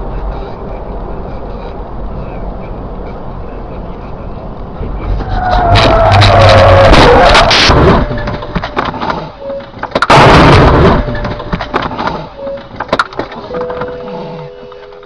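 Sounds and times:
tyre screech: 5.0 - 8.4
knocks and clatter: 5.3 - 14.1
car crash impact: 5.6 - 13.5.

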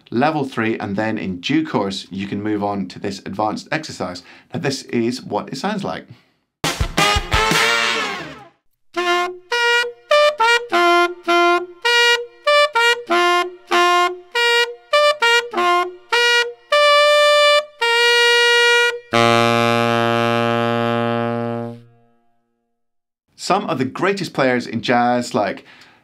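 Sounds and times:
tenor saxophone bugle call: 7.0 - 22.1.

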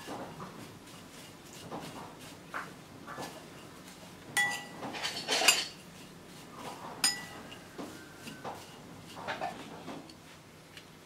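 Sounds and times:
spoon clinking against bowl: 4.4 - 5.8, 7.0 - 8.4.

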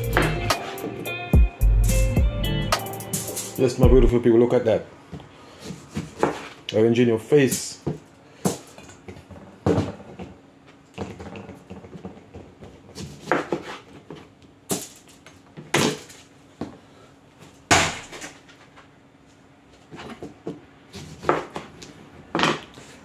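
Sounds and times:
knife chopping on cutting board: 6.0 - 6.5.

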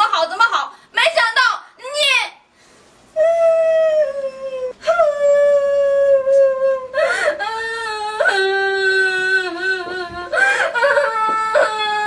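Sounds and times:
woman sobbing: 3.2 - 12.0
woman wailing: 3.2 - 12.0.

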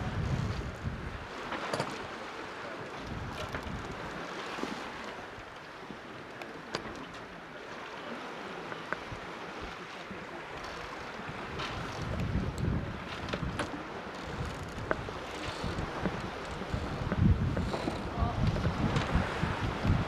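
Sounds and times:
wind buffeting microphone: 0.0 - 1.5, 2.9 - 4.3, 11.0 - 20.0
water rushing along hull: 0.0 - 20.0.

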